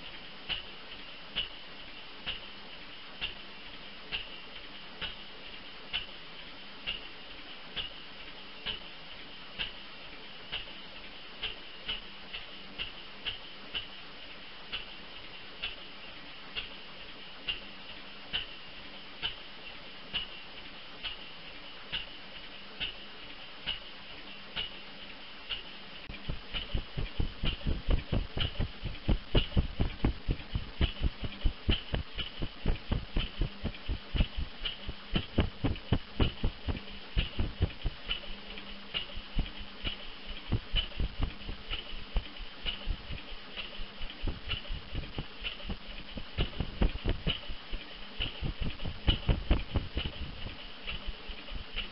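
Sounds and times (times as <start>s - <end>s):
engine firing thumps: 26.1s - 38.2s, 39.0s - 43.2s, 44.2s - 47.6s, 48.2s - 50.6s
gas engine ticking: 26.1s - 38.4s, 39.0s - 47.6s.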